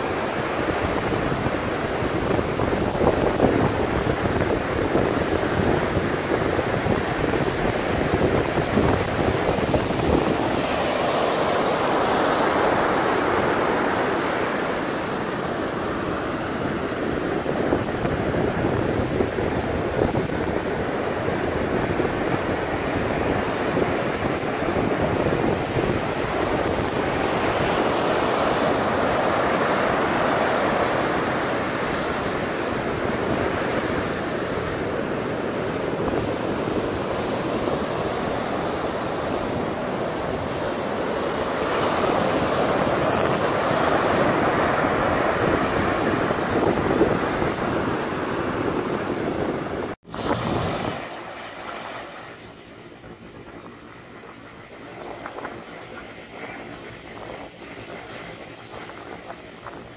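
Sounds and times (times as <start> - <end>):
sea surf breaking on beach: 0.0 - 59.9.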